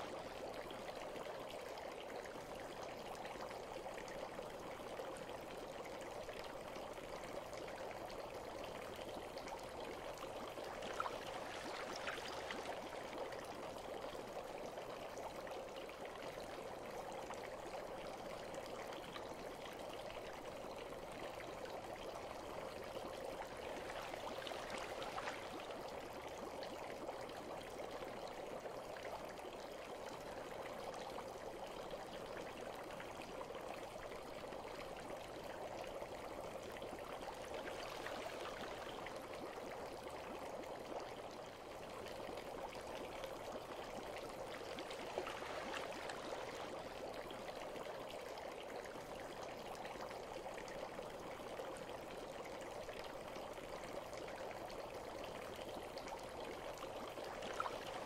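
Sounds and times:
bath water trickling: 7.9s - 14.4s, 22.8s - 26.4s, 43.4s - 48.7s, 56.5s - 58.0s.

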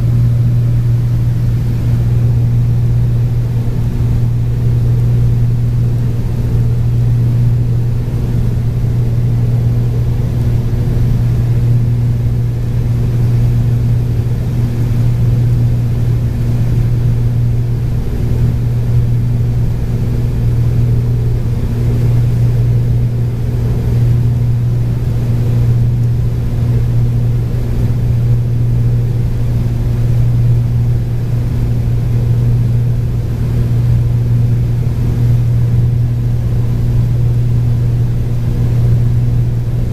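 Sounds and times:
aircraft cabin engine drone: 0.0s - 39.9s.

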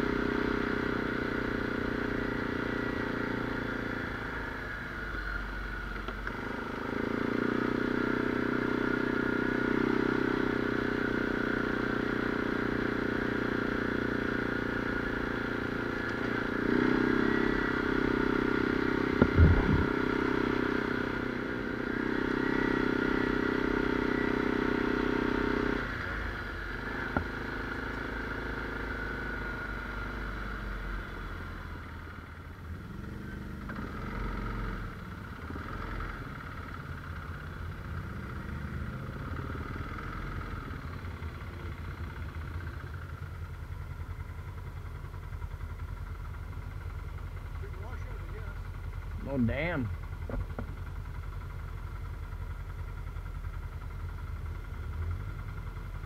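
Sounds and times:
quad bike engine revving: 0.0s - 4.7s, 6.2s - 31.8s, 32.8s - 37.0s, 38.0s - 42.0s
sharp knocks: 19.2s - 19.9s.

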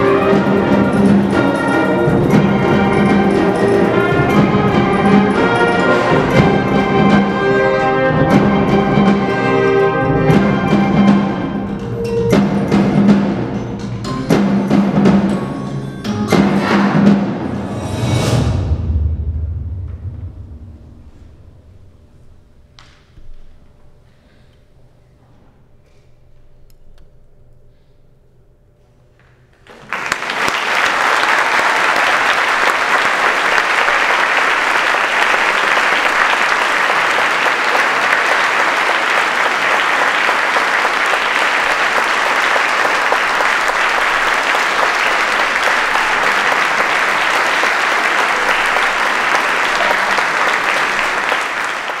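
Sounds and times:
audience applauding: 29.6s - 52.0s.

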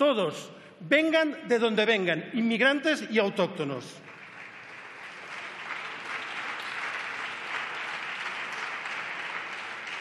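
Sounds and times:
people applauding: 4.0s - 10.0s.

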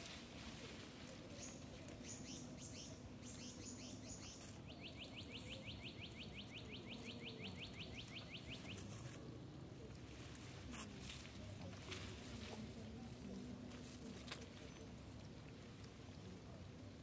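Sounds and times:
bird calling high-pitched: 2.2s - 8.9s.

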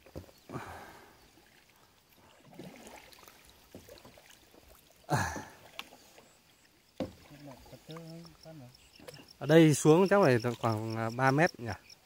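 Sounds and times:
water lapping around boat: 0.0s - 12.0s
water splash: 2.4s - 6.0s.

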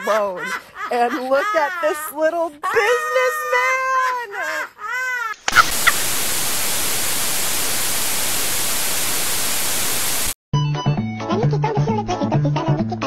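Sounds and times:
white noise static hiss: 5.5s - 10.4s.

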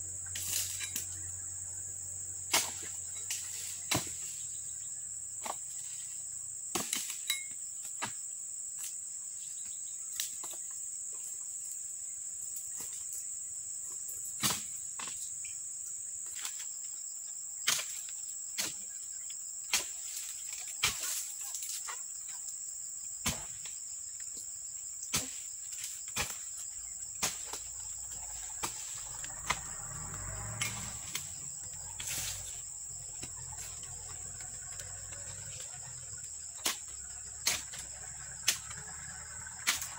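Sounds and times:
high-pitched insect drone: 25.8s - 39.9s.

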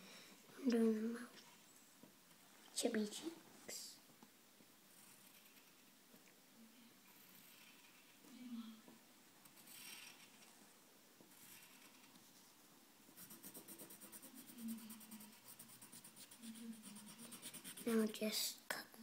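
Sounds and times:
pencil scratching on paper: 9.4s - 10.4s, 11.3s - 12.1s, 13.2s - 18.2s.

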